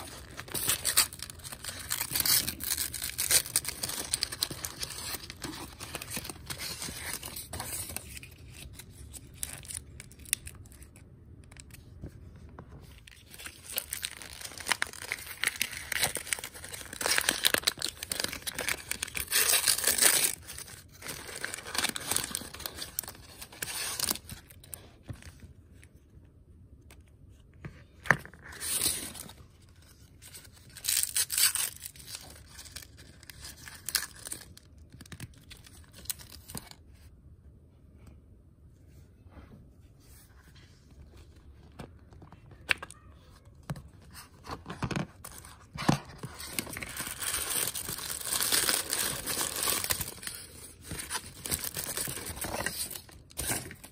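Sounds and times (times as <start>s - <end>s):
wrapping crinkling and tearing: 0.0s - 11.9s, 12.9s - 25.4s, 28.4s - 36.8s, 44.1s - 53.9s.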